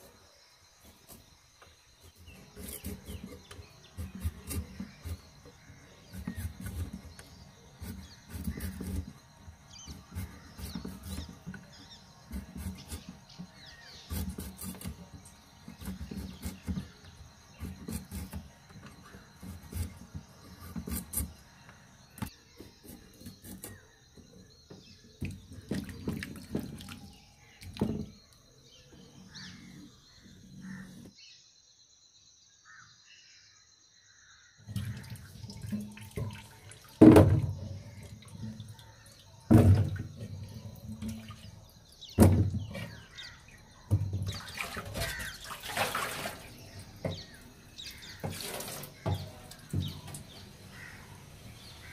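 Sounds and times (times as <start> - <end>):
knife scraping fruit peel: 2.0 - 24.0
water splashing in metal sink: 25.2 - 28.1, 34.7 - 51.2
clay pot knocking against sink: 37.0 - 37.6.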